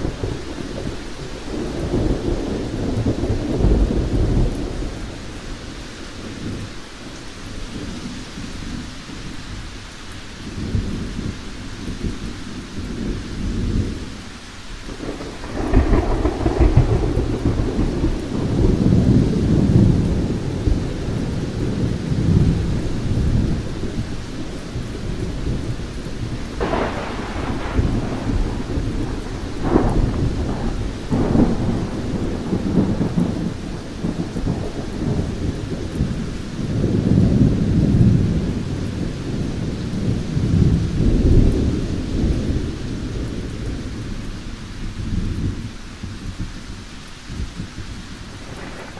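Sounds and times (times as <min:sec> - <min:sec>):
rolling thunder: 0:00.0 - 0:06.8, 0:14.9 - 0:48.9
steady rain: 0:00.0 - 0:48.9
sharp thunder cracks: 0:14.9 - 0:22.6, 0:26.3 - 0:36.1, 0:48.4 - 0:48.9.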